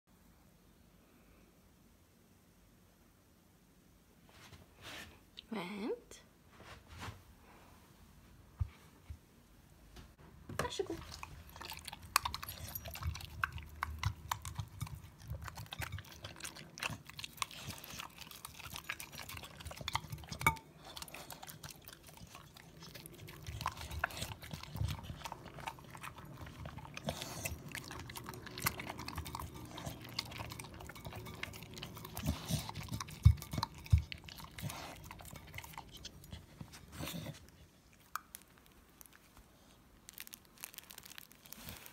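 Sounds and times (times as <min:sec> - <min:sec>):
dog chewing wetly: 0:10.8 - 0:41.9
teeth knocking ceramic plate: 0:30.2 - 0:34.7.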